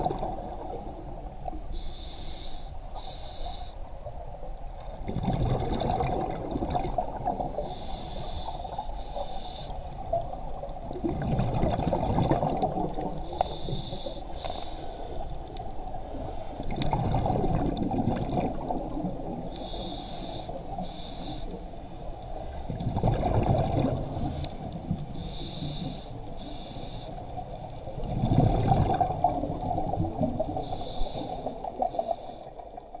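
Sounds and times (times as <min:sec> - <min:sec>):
exhaled bubbles rumbling: 0:00.0 - 0:01.4, 0:04.2 - 0:07.8, 0:10.0 - 0:13.3, 0:15.8 - 0:19.5, 0:22.4 - 0:25.2, 0:27.4 - 0:33.0
regulator hissing inhale: 0:01.7 - 0:03.9, 0:07.6 - 0:09.9, 0:13.2 - 0:15.4, 0:19.5 - 0:21.9, 0:25.2 - 0:27.4, 0:30.6 - 0:32.7.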